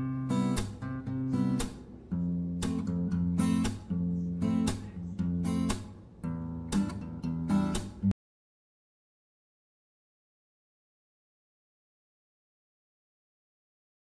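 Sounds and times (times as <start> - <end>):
acoustic guitar strumming chords: 0.0 - 8.1.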